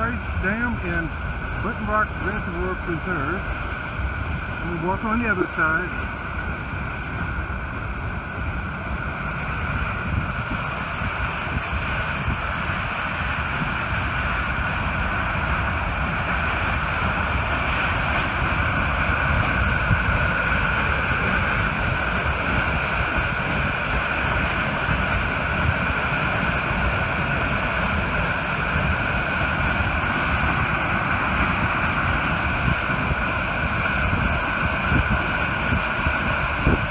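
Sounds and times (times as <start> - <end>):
rushing white water: 0.0 - 36.9.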